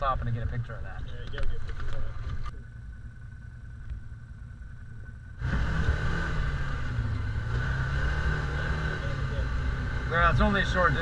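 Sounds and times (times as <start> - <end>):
utility vehicle engine idling: 0.0 - 7.6
vehicle engine driving drone: 0.0 - 11.0.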